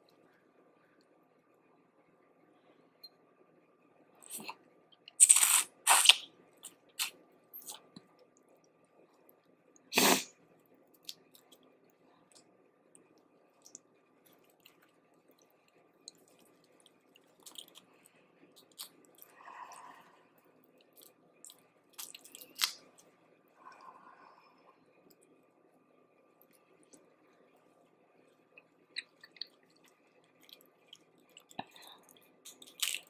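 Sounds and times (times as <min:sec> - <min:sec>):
crunching and chewing: 0:11.0 - 0:23.8, 0:26.4 - 0:33.0
mouth clicks and smacks: 0:28.6 - 0:33.0.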